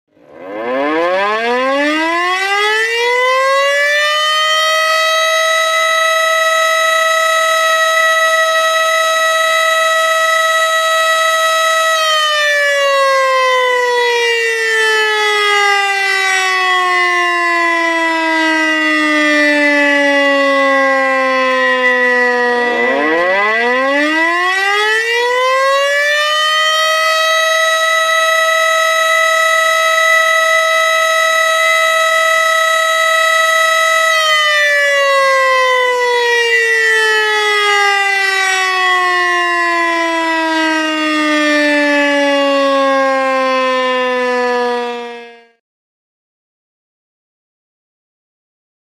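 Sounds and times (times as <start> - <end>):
warning siren winding down: 0.1 - 45.6.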